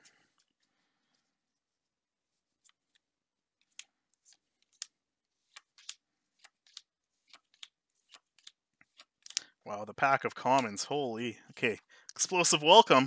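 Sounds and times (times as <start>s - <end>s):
playing cards flicking and clicking: 2.4s - 9.6s, 10.2s - 10.9s.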